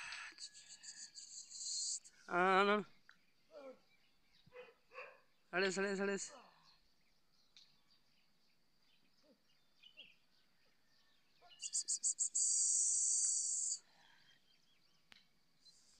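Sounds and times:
faint bird chirps: 0.0 - 15.9
person hissing through teeth: 11.6 - 13.8.

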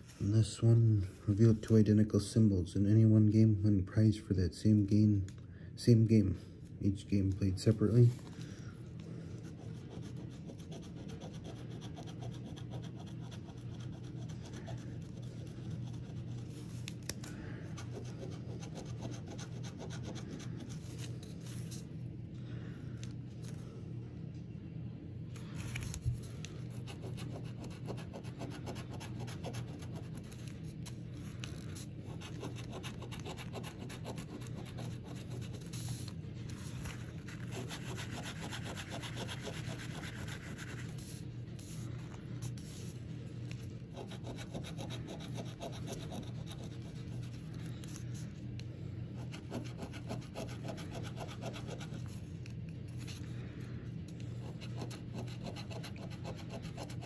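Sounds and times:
coin scratching lottery ticket: 37.2 - 41.0, 54.4 - 57.0.

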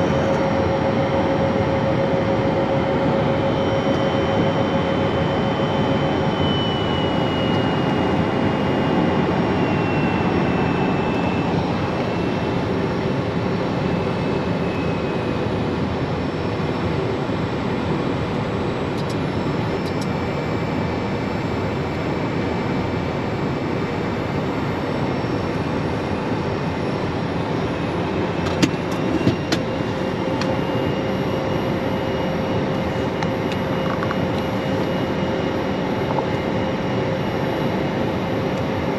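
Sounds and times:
high whine falling in pitch: 0.0 - 15.6, 26.4 - 38.9
jet cockpit airflow and engine hum: 0.0 - 38.9.

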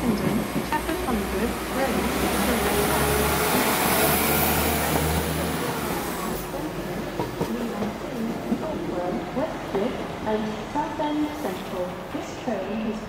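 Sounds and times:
train engine drone: 0.0 - 13.0.

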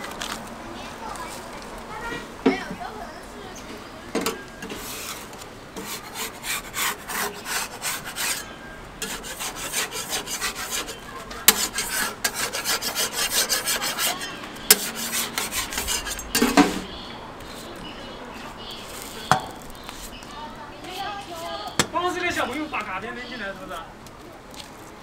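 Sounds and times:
metal spatula scraping griddle: 4.2 - 16.9.

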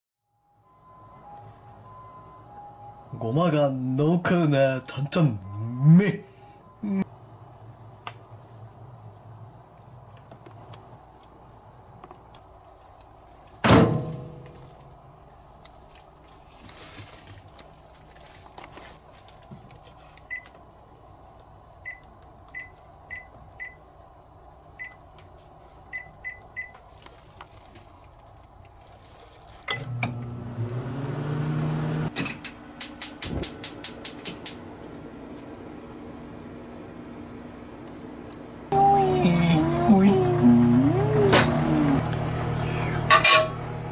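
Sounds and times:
microwave keypad beeps: 21.8 - 22.0, 22.6 - 23.8
microwave oven humming: 29.7 - 32.8, 34.6 - 43.9.

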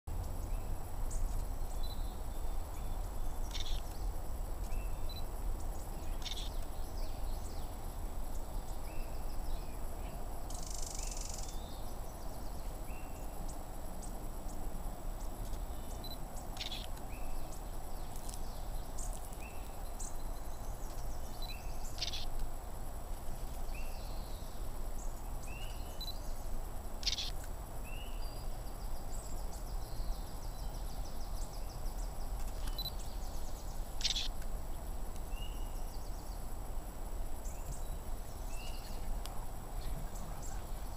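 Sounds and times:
bird rising chirp: 0.1 - 7.8, 18.6 - 22.3, 25.4 - 27.3, 27.9 - 34.3
steady low rumble: 0.1 - 40.9.

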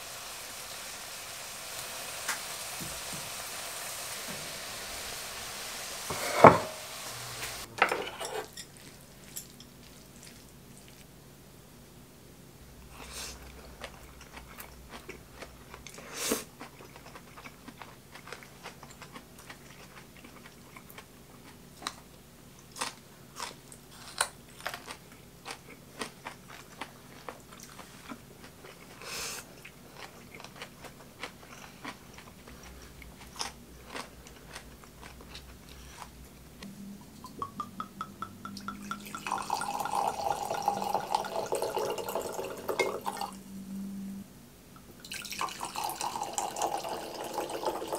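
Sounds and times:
person chewing noodles: 8.7 - 11.1, 13.0 - 36.5
chopsticks clicking on bowl: 37.2 - 39.0
wine pouring into glass: 37.2 - 43.4, 45.0 - 47.9.

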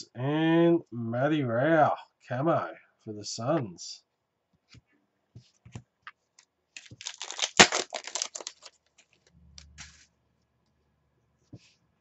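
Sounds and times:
trading cards clicking and rustling: 6.8 - 10.0.

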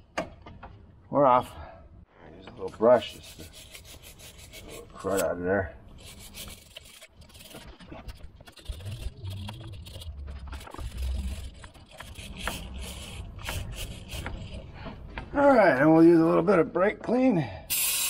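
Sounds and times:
brush scraping metal: 2.6 - 15.0.

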